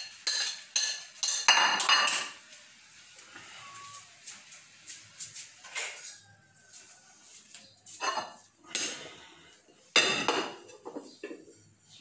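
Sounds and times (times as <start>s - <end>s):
pans and plates clattering: 0.0s - 2.4s, 8.0s - 9.0s, 9.9s - 11.5s.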